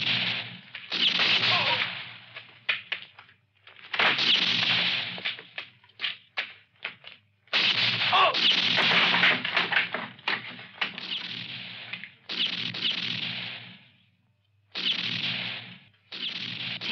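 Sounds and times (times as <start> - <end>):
gunshots with ringing tails: 0.0 - 2.4, 4.0 - 5.6, 7.5 - 14.1, 14.7 - 16.9
sharp gunshots: 0.0 - 2.9, 3.9 - 5.7, 7.5 - 14.0, 14.7 - 16.9.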